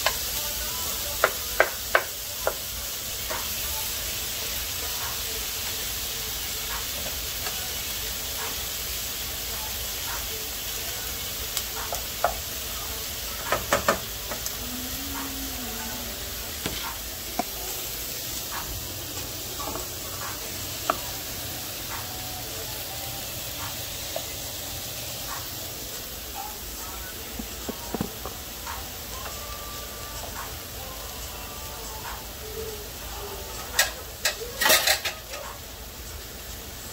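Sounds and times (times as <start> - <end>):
food sizzling in skillets: 0.0 - 36.9
wooden spatula knocking pan: 13.5 - 14.5.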